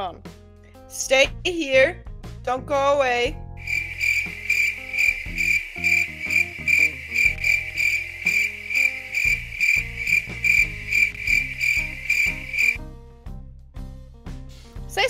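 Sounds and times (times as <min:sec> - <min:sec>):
background music with bass notes: 0:00.0 - 0:15.0
cricket chirp sound effect: 0:03.6 - 0:12.8.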